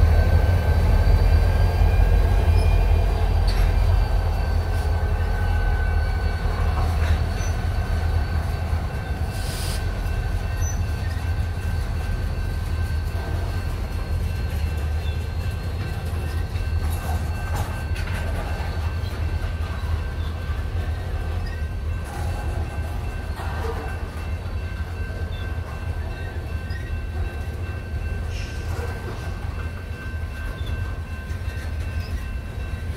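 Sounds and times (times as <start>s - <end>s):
train wheels on rails: 0.0s - 32.9s.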